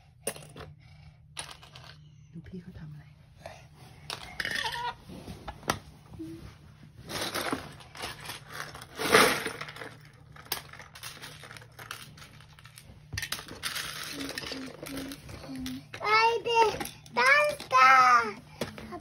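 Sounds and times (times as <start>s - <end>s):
plastic bricks clattering: 7.1s - 19.0s.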